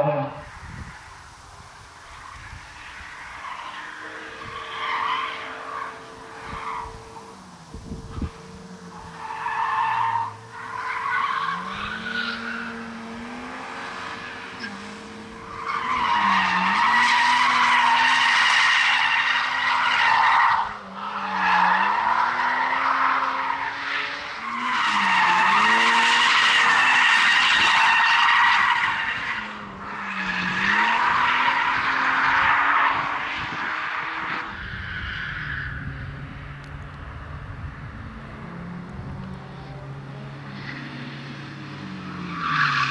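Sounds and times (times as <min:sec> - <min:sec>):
car engine revving: 0:01.6 - 0:34.6.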